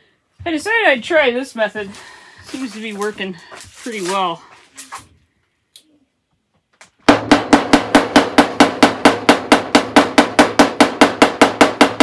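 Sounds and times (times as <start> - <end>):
hammer tapping on steel panel: 7.1 - 12.0.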